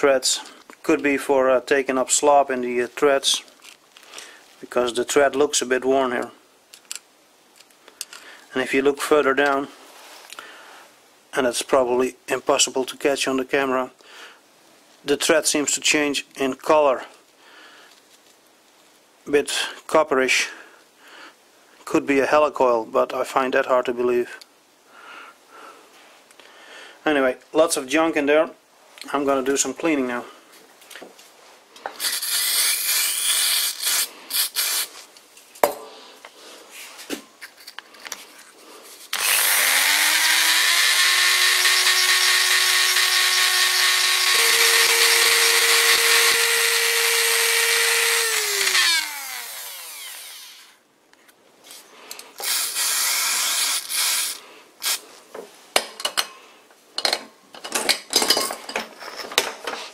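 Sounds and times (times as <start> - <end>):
rotary tool spinning: 32.0 - 34.9, 39.1 - 50.8, 52.4 - 55.0.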